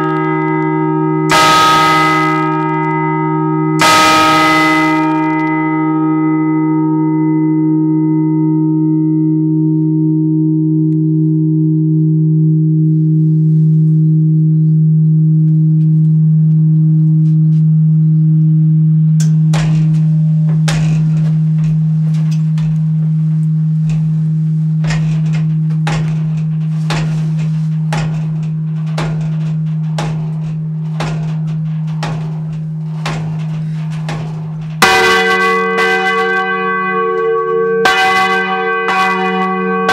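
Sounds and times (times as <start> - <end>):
church bell humming: 0.0 - 39.9
sharp clicks and knocks: 19.2 - 36.5.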